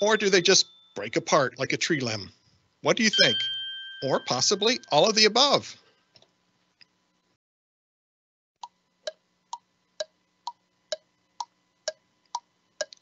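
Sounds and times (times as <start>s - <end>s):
clock tick-tock: 8.6s - 13.0s.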